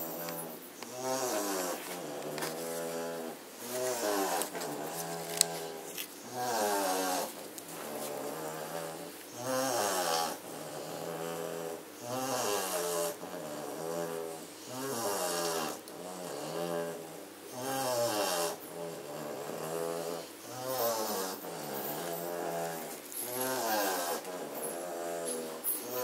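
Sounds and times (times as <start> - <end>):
puppy snoring: 0.0 - 26.0.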